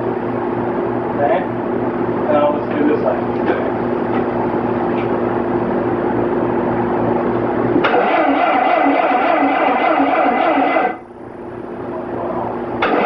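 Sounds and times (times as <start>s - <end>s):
machinery humming: 0.0s - 13.0s
machinery rhythmic pulsing: 7.8s - 11.2s, 12.6s - 13.0s.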